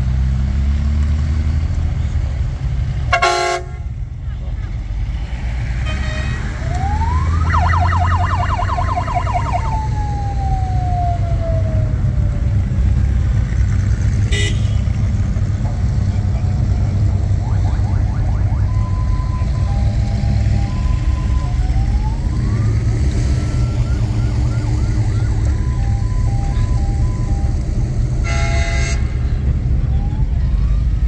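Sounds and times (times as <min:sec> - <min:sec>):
car engines rumbling: 0:00.0 - 0:31.0
electronic siren yelping: 0:06.5 - 0:12.3, 0:17.3 - 0:22.9.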